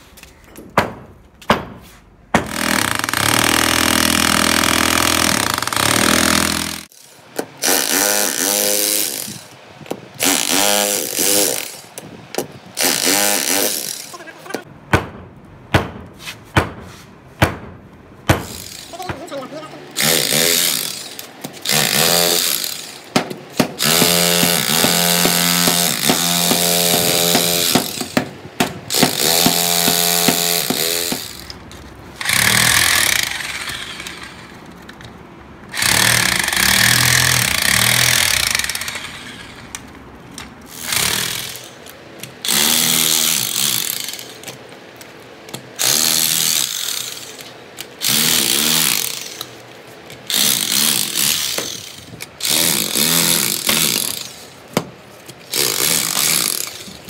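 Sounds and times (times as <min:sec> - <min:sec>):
demolition hammer chiselling concrete: 0:20.0 - 0:31.4, 0:35.7 - 0:39.0, 0:50.3 - 0:54.4, 0:55.5 - 0:57.0.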